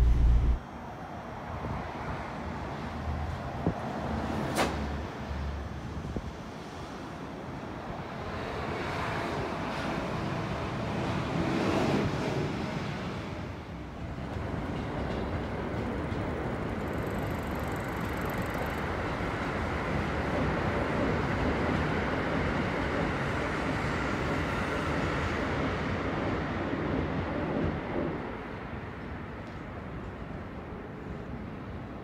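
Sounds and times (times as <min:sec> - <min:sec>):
faint high whine: 0:00.0 - 0:00.6
electric train rumbling past: 0:00.0 - 0:03.4, 0:06.8 - 0:29.1.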